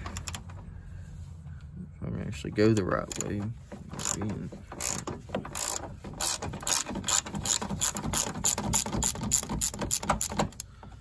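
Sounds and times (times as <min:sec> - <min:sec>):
ratchet wrench clicking: 0:02.8 - 0:03.4, 0:04.0 - 0:04.2, 0:04.8 - 0:10.7.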